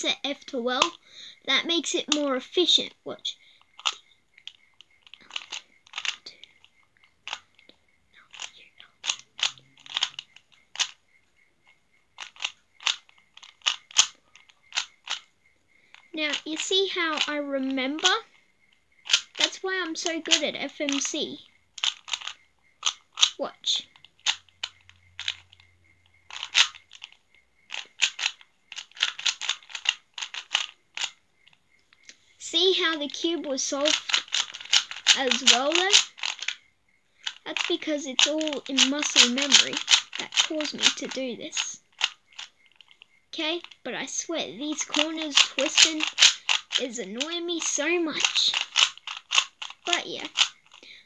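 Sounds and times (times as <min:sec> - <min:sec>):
puzzle cube clicking as turned: 0:03.8 - 0:07.5, 0:08.3 - 0:11.0, 0:12.2 - 0:15.3, 0:15.9 - 0:17.3, 0:19.0 - 0:21.2, 0:21.8 - 0:23.4, 0:24.1 - 0:25.6, 0:26.3 - 0:31.2, 0:33.8 - 0:36.6, 0:37.2 - 0:43.0, 0:44.6 - 0:50.8.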